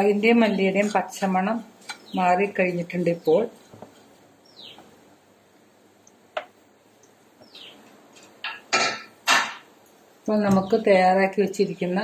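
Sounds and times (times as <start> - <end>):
spatula stirring in a pan: 0.8 - 2.1.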